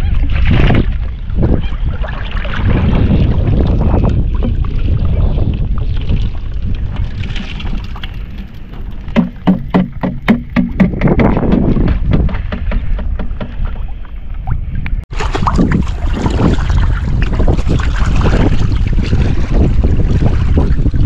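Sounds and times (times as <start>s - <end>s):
wind buffeting microphone: 0.0s - 21.0s
plastic scoop knocking on bucket: 9.2s - 13.6s.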